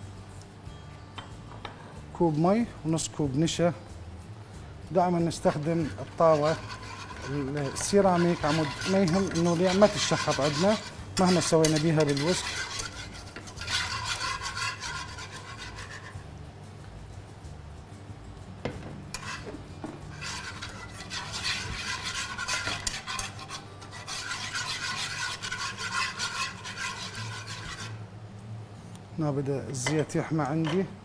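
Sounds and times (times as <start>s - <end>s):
whisk scraping a pan: 5.1s - 16.4s, 19.1s - 28.1s.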